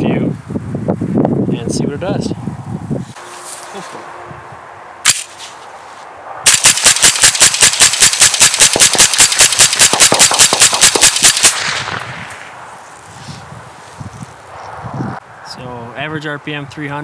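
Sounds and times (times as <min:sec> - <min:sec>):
rifle shots rapid fire: 0:06.5 - 0:12.3
gunshot echo: 0:06.5 - 0:12.5.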